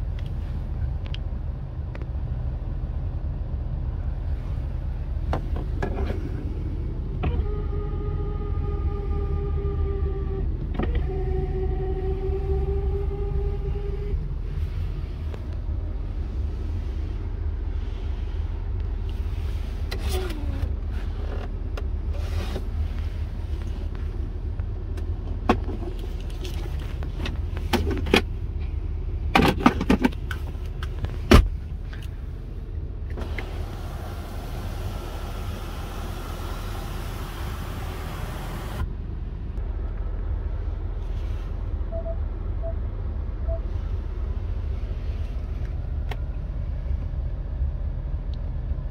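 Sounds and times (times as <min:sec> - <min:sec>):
faint short beeps: 0:41.9 - 0:42.8, 0:43.4 - 0:43.7.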